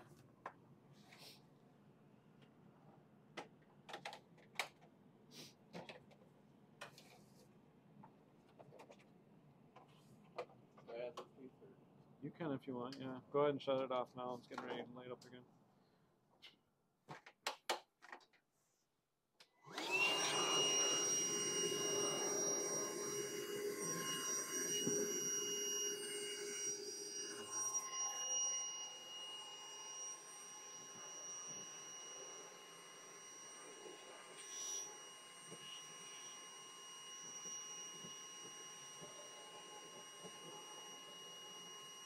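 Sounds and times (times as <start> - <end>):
handheld vacuum whining: 19.6 - 42.0.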